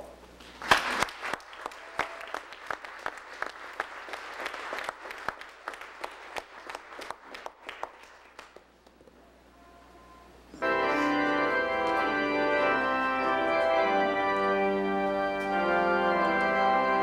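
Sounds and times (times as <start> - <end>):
congregation applauding: 0.4 - 9.0
loud nearby claps: 0.4 - 9.2.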